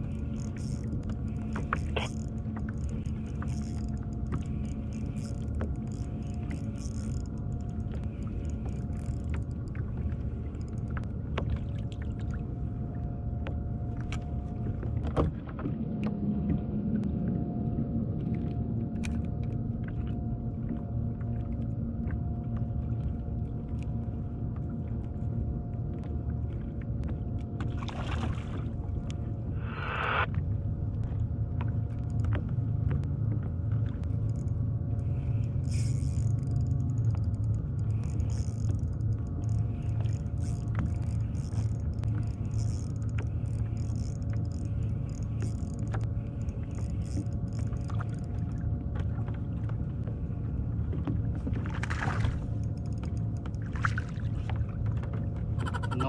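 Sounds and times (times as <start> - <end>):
low mechanical hum with tones: 0.0 - 56.0
light clicks and taps: 0.2 - 12.4, 31.0 - 34.6, 35.4 - 50.1, 50.9 - 55.5.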